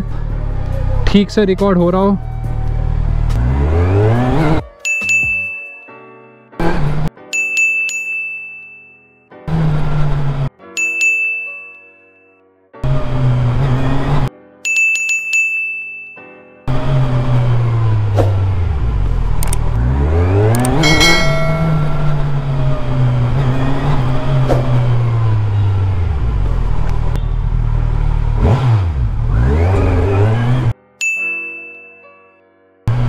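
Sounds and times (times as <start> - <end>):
motorcycle engine revving: 0.0 - 4.6, 16.7 - 30.7
short ringing ding: 20.8 - 23.1.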